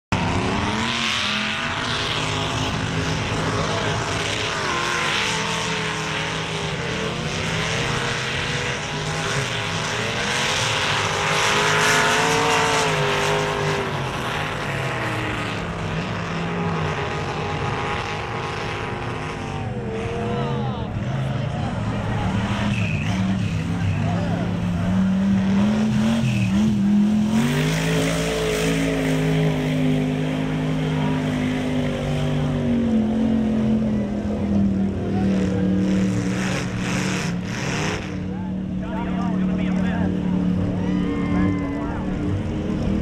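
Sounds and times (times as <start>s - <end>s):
truck engines revving hard: 0.0s - 43.0s.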